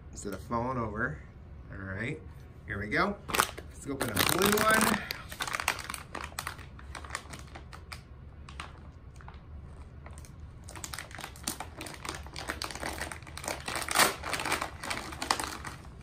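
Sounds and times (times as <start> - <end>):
plastic packaging crinkling: 3.3 - 16.0.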